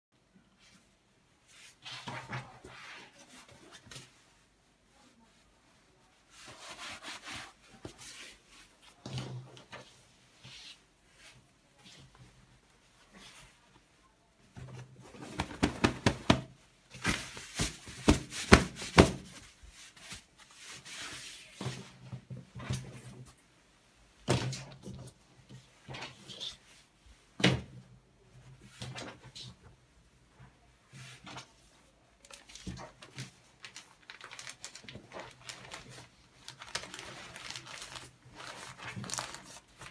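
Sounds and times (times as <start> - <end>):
fabric rustling: 0.5 - 27.4, 28.2 - 39.9
cloth bag rustling: 33.0 - 39.9.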